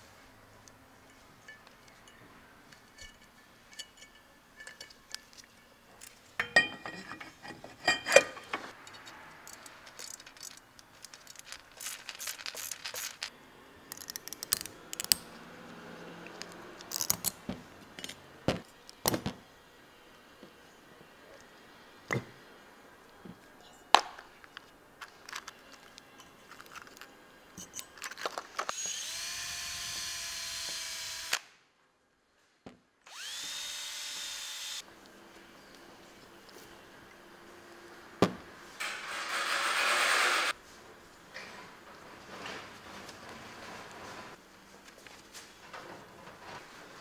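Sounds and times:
steel tools clinking: 1.0 - 13.3, 25.0 - 28.6
metallic ring: 1.1 - 5.3, 6.4 - 8.7.

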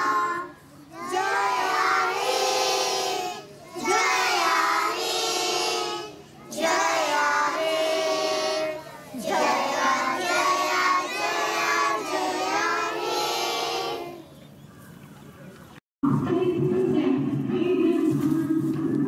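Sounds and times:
children singing in unison: 0.0 - 14.2.

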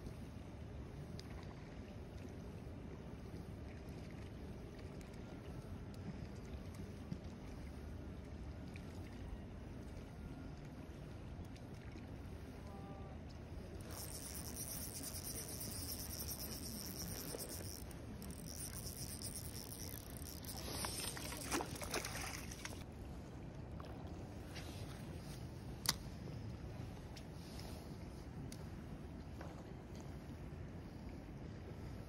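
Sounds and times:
low outdoor noise: 4.7 - 29.5
fish splashing at water surface: 13.8 - 22.8.

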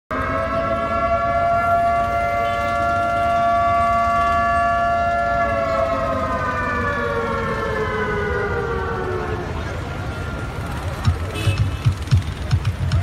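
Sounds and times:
siren winding down: 0.1 - 11.0.

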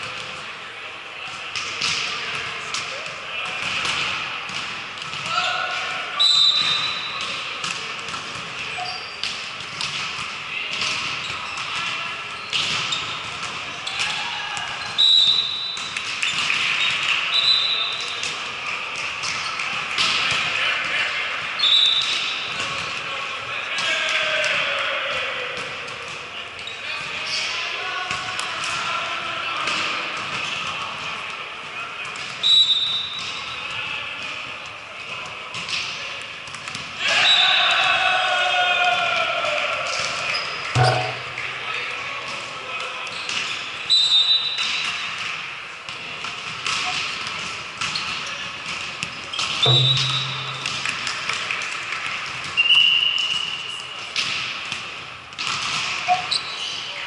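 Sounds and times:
players' voices and chatter: 0.0 - 57.0
ball thumps on gym floor: 40.8 - 41.4, 49.6 - 51.2
short high whistle blast: 49.6 - 51.0.

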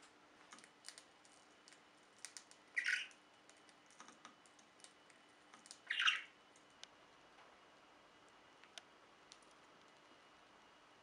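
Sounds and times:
budgerigar chirping: 2.8 - 3.1, 5.8 - 6.4.

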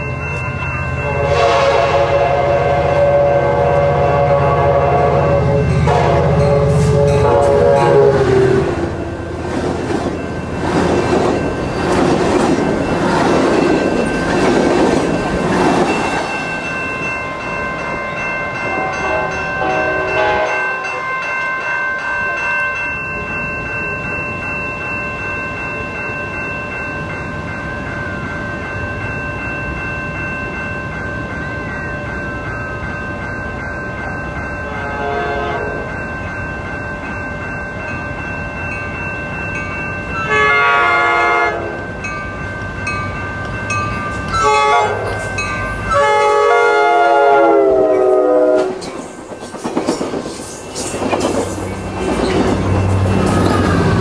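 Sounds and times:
crossing signal ringing: 0.0 - 54.0
locomotive horn chord: 1.0 - 9.3, 18.8 - 21.0, 34.7 - 35.8, 40.3 - 41.8, 44.4 - 45.2, 45.9 - 48.8
train wheels clattering: 9.4 - 16.8, 48.5 - 54.0.

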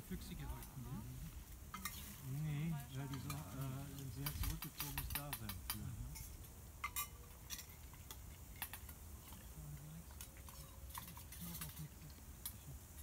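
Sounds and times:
distant low conversation: 0.0 - 7.5, 8.9 - 13.0.

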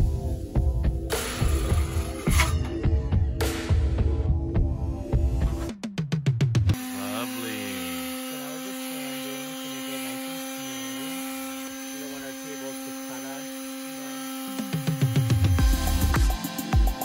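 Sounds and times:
electric sander humming: 1.1 - 2.3, 6.7 - 17.0
person talking: 6.9 - 10.1.

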